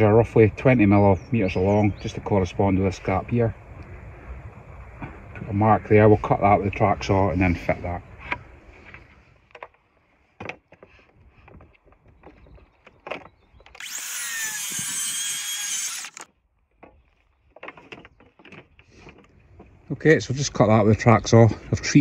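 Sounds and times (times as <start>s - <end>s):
knocks and clatter of a board: 9.5s - 9.8s, 10.4s - 13.8s, 16.7s - 19.8s
track saw cutting wood: 13.8s - 16.3s.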